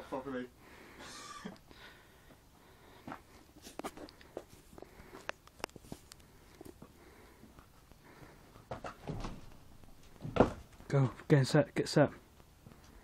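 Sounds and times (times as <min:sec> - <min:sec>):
camera handling clicks and rustles: 0:03.6 - 0:06.8.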